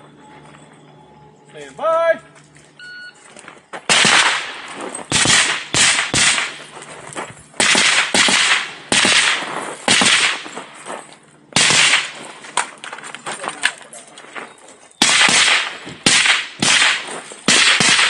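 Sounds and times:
gunshots with echoing tail: 0:03.9 - 0:06.7, 0:07.6 - 0:10.6, 0:11.6 - 0:12.2, 0:15.0 - 0:18.0.

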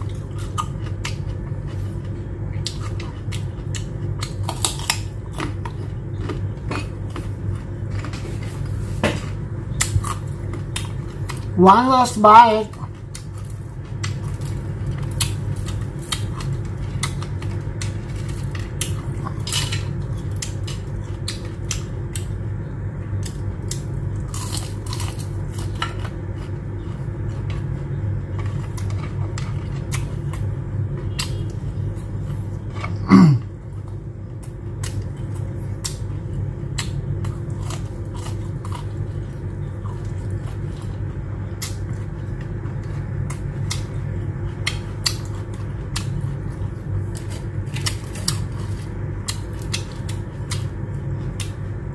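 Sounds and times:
chewing crunchy fried food: 0:00.0 - 0:51.9
low background hum: 0:00.0 - 0:51.9
loud throat sound: 0:33.0 - 0:33.5.

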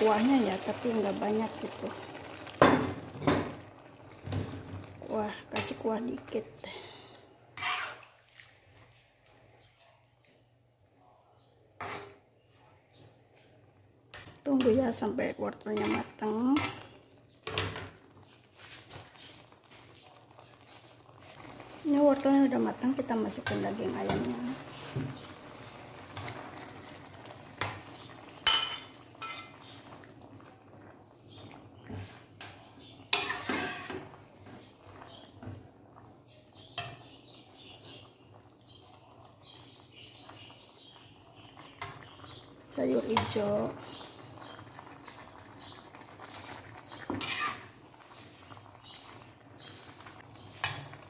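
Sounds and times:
metal spatula stirring greens in wok: 0:07.6 - 0:08.2, 0:15.7 - 0:17.0, 0:32.0 - 0:34.0, 0:47.0 - 0:47.8
spatula scraping pan: 0:07.6 - 0:08.2, 0:11.8 - 0:12.2, 0:33.1 - 0:34.1, 0:47.0 - 0:50.9.

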